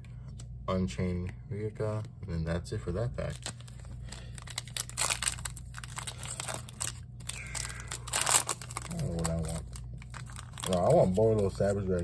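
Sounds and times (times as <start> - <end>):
foil wrapper crinkling and tearing: 3.2 - 12.0.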